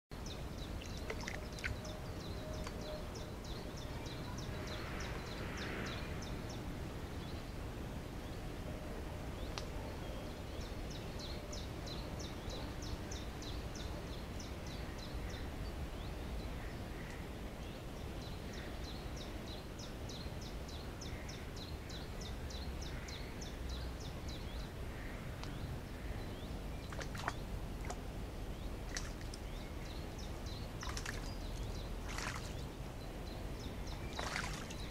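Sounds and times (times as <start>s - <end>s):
bird splashing in water: 0.8s - 1.8s, 26.8s - 28.1s, 28.8s - 29.6s, 30.3s - 32.7s, 33.9s - 34.9s.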